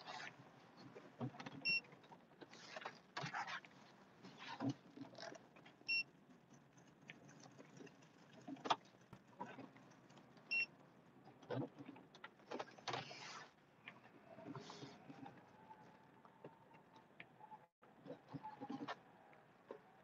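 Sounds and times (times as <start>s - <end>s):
knocks and scraping rustles: 11.3s - 17.1s.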